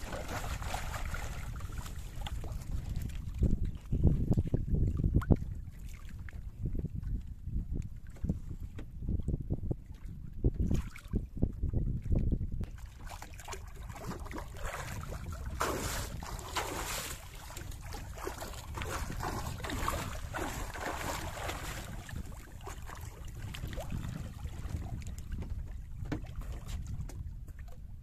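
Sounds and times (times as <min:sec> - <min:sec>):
wind rumble on microphone: 0:00.0 - 0:28.0
swimmer splashing water: 0:15.5 - 0:22.0.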